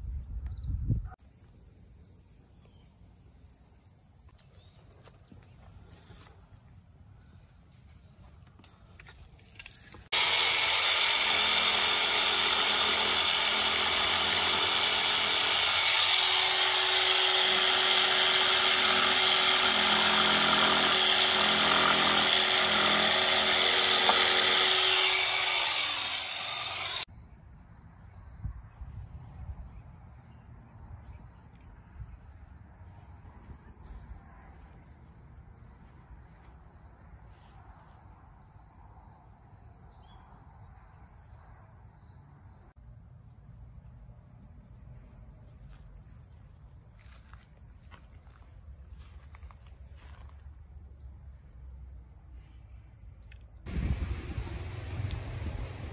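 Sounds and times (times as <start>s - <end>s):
power saw cutting wood: 10.1s - 27.1s.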